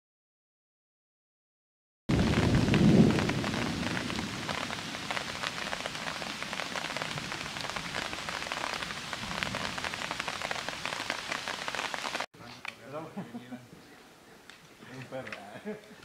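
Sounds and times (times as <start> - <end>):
rain pattering on plastic: 2.1 - 12.8.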